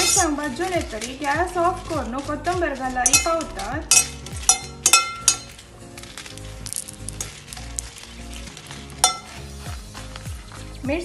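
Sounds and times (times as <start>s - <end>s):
metal spoon clinking pan: 0.0s - 2.0s, 3.0s - 5.6s, 8.8s - 9.4s
chillies sizzling in oil: 0.0s - 11.0s.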